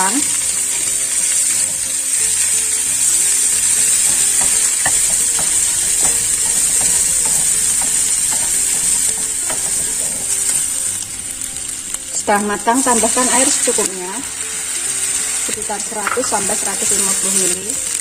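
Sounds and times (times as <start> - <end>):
paste sizzling in hot oil: 0.0 - 18.0
spatula scraping and tapping pan: 0.7 - 11.6, 15.4 - 17.4.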